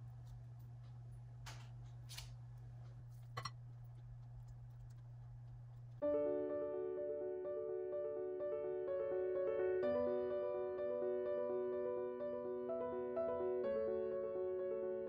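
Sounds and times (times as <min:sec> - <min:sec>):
steady low hum: 0:00.0 - 0:06.0
piano background music: 0:06.0 - 0:15.0.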